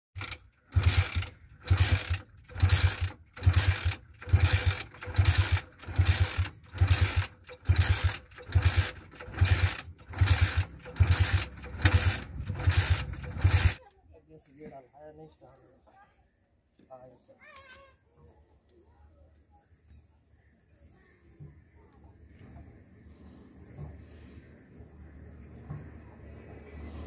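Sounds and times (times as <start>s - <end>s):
motorcycle engine kick-start cranking: 0.2s - 13.8s.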